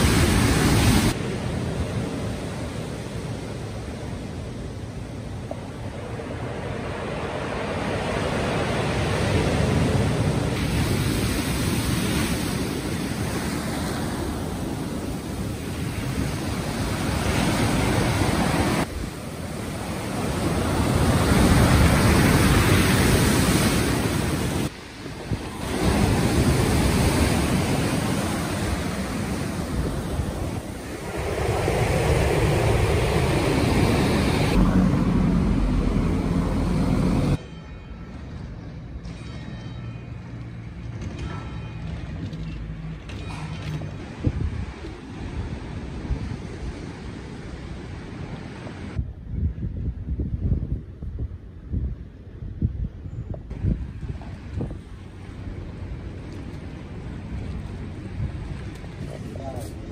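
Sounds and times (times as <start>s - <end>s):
waves breaking on pebble beach: 6.2s - 34.6s
wind buffeting microphone: 43.8s - 59.9s.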